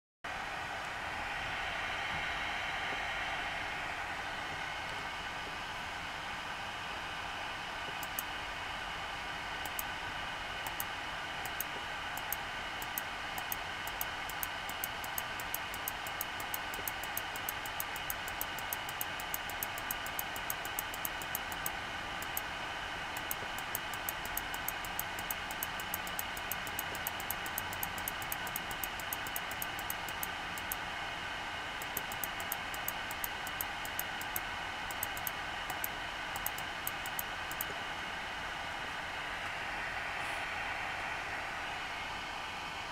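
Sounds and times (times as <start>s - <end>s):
machine hum with high tones: 0.3s - 42.9s
faint ticks: 10.7s - 22.4s, 23.2s - 30.8s, 31.8s - 37.8s.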